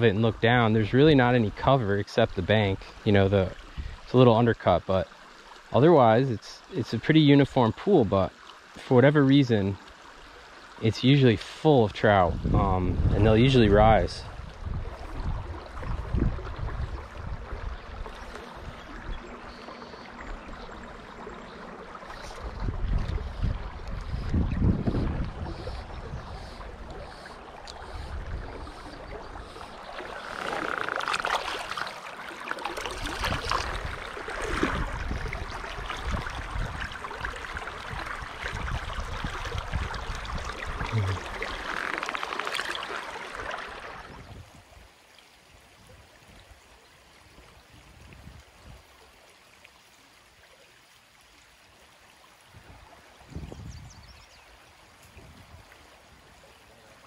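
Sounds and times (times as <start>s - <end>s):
stream burbling: 0.0s - 57.0s
hands splashing in stream water: 28.8s - 44.2s.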